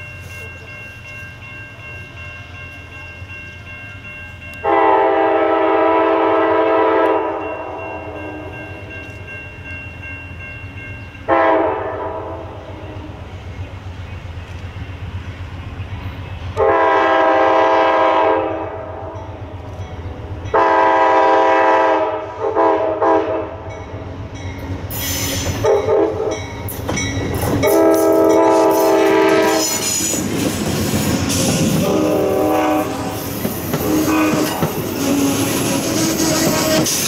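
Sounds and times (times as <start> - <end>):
train horn blasts: 4.6 - 9.0, 11.3 - 13.2, 16.6 - 19.3, 20.4 - 23.8, 25.1 - 26.5, 27.6 - 30.3, 31.4 - 37.0
train wheels clattering over rails: 24.4 - 37.0.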